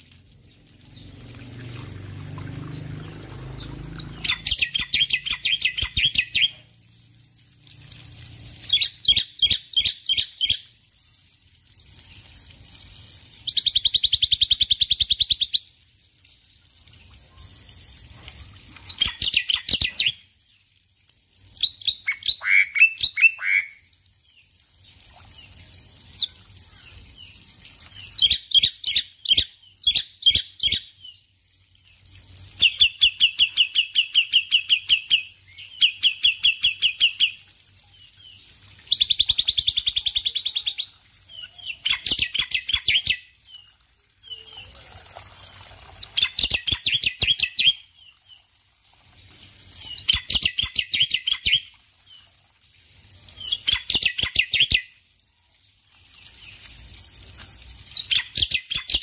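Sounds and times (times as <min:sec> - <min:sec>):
bird singing harsh repeated notes: 0:02.5 - 0:06.7, 0:08.6 - 0:10.6, 0:21.5 - 0:23.9.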